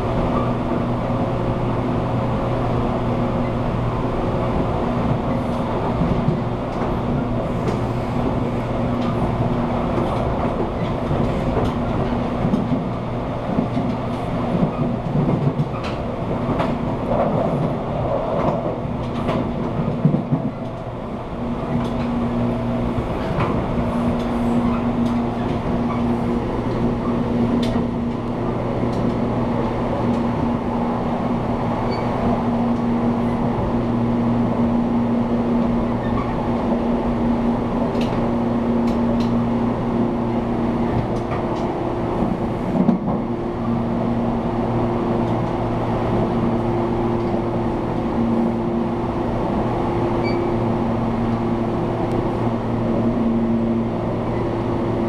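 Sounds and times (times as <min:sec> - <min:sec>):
rail joint clicks: 0:00.0 - 0:55.0
train wheels rumbling on track: 0:00.0 - 0:55.0.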